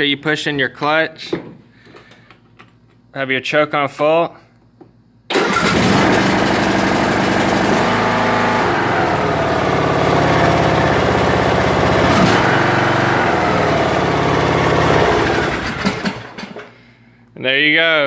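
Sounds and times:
mower engine starting and running: 5.3 - 16.8.

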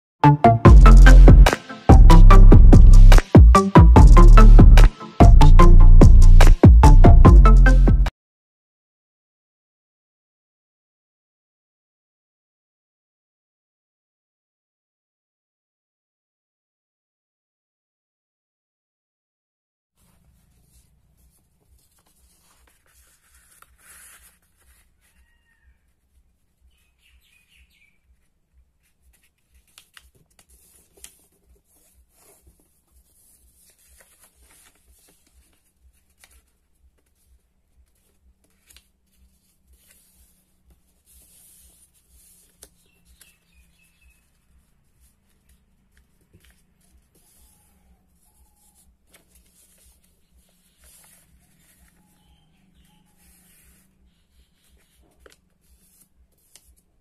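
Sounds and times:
paper rustling and crinkling: 20.0 - 25.4, 28.2 - 57.0.

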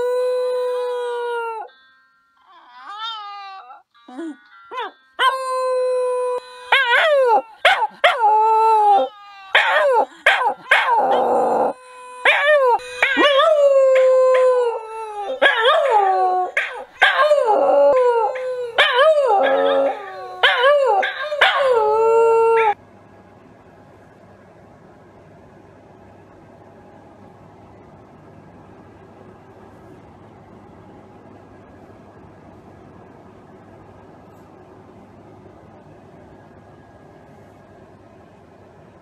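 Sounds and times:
dog howling: 0.0 - 1.7, 2.4 - 3.9, 4.8 - 22.8.

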